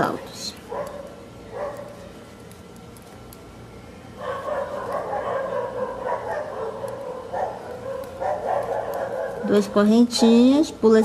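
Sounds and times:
faint steady hum: 0:00.0 - 0:11.0
dog barking: 0:00.7 - 0:02.0, 0:04.2 - 0:11.0.

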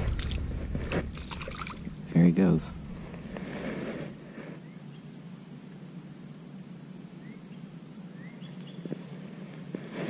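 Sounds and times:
small splash in water: 0:00.0 - 0:02.0
high-pitched insect drone: 0:00.0 - 0:08.4.

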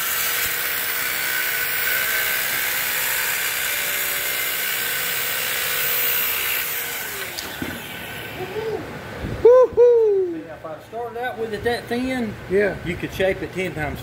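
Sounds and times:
power grinder whining: 0:00.0 - 0:08.6.

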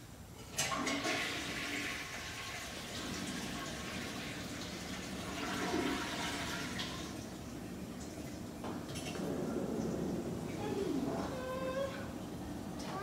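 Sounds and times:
toilet flushing: 0:00.5 - 0:10.6
running water: 0:00.7 - 0:13.0.

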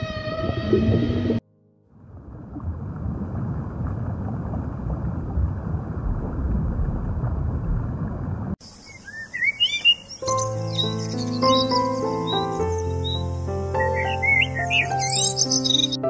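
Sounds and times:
muffled underwater rushing water: 0:00.2 - 0:09.4.

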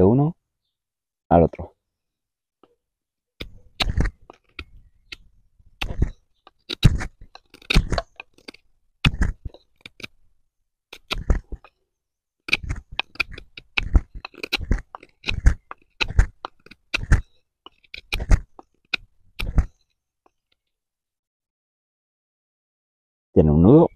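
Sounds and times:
knife shaving wooden stick: 0:03.4 - 0:11.8, 0:12.5 - 0:20.6.

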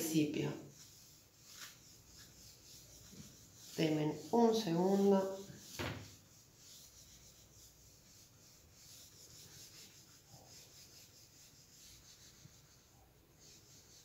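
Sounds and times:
cloth rubbing on whiteboard: 0:00.0 - 0:14.0.

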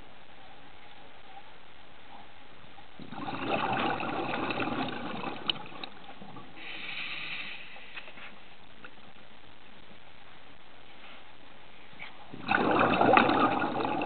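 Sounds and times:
exhaled bubbles underwater: 0:03.0 - 0:06.7, 0:12.3 - 0:14.0
regulator inhalation hiss: 0:06.6 - 0:08.2.

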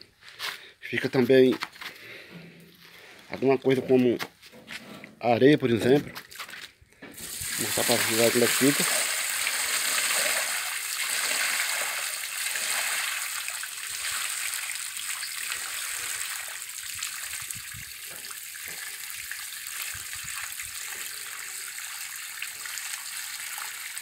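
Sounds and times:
water pouring and splashing on ground: 0:05.8 - 0:24.0.

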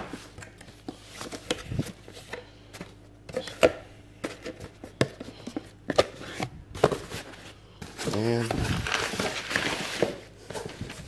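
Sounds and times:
paper rustling: 0:04.3 - 0:11.0.

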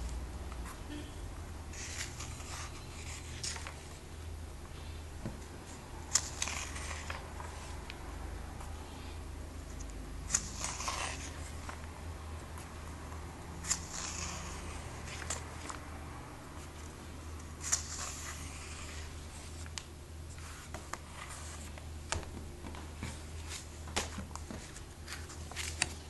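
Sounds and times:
steady low hum: 0:00.0 - 0:26.0
pages turning: 0:01.7 - 0:04.0, 0:05.7 - 0:08.0, 0:09.8 - 0:11.9, 0:13.6 - 0:15.9, 0:17.6 - 0:26.0.

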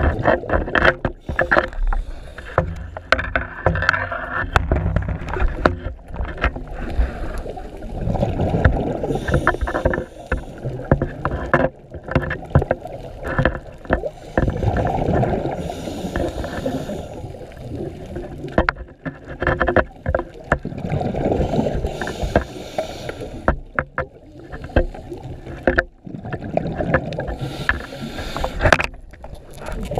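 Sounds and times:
sharp clicks and knocks: 0:00.0 - 0:06.6, 0:08.6 - 0:14.9, 0:18.5 - 0:20.7, 0:22.0 - 0:26.0
bubbling and hiss: 0:00.0 - 0:19.0, 0:19.9 - 0:29.9
diver breathing underwater: 0:01.1 - 0:03.2, 0:06.7 - 0:11.0, 0:14.0 - 0:18.2, 0:20.9 - 0:23.7, 0:27.1 - 0:28.8.

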